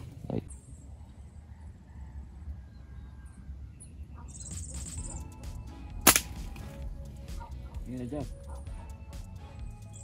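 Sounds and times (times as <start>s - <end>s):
low rumble of wind: 0.0s - 5.2s.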